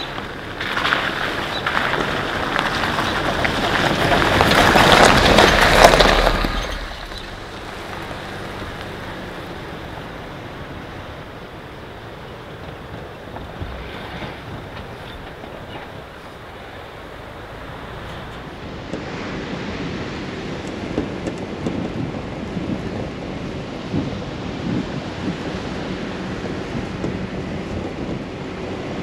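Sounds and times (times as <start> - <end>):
tyres crunching over stones: 0.0 - 10.2
surf: 0.0 - 23.0
steady wind: 0.0 - 29.0
vehicle driving on gravel trail: 0.0 - 29.0.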